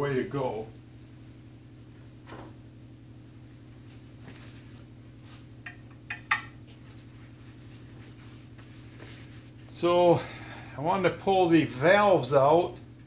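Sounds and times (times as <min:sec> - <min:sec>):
steady low hum: 0:00.0 - 0:13.0
shop rag rubbing: 0:03.4 - 0:05.6, 0:06.6 - 0:10.0.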